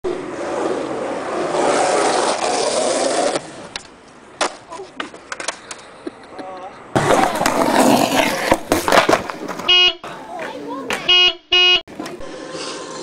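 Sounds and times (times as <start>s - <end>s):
skateboard wheels rolling on concrete: 0.0s - 11.1s, 11.9s - 13.0s
skateboard clattering: 1.9s - 11.1s
skateboard clacking on ground: 2.3s - 11.1s
skateboard tail pop: 8.4s - 9.7s.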